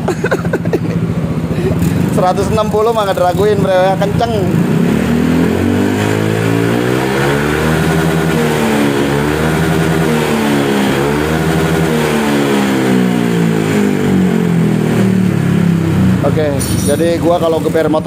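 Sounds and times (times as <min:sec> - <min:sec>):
scooter engine revving: 0:00.0 - 0:18.0.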